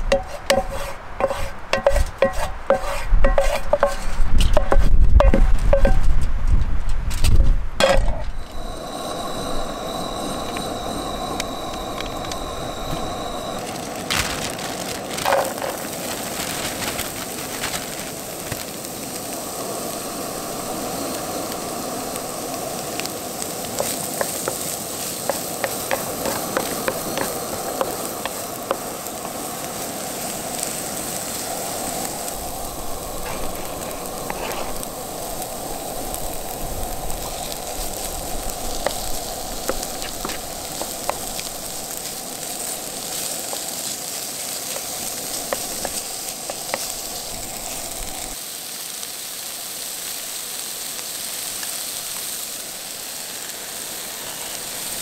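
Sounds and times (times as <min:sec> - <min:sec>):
spatula scraping and tapping pan: 0:00.0 - 0:06.2, 0:07.8 - 0:08.3, 0:23.8 - 0:29.4
onion and garlic sizzling in oil: 0:00.0 - 0:06.3, 0:07.2 - 0:55.0.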